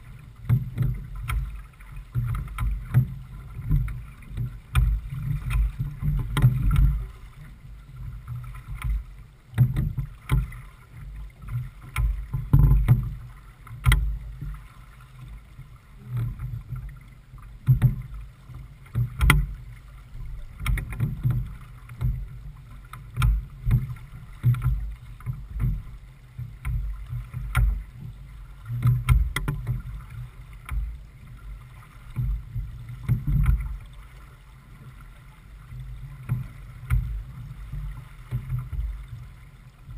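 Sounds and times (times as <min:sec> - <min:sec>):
water slapping against hull: 0:00.0 - 0:39.9.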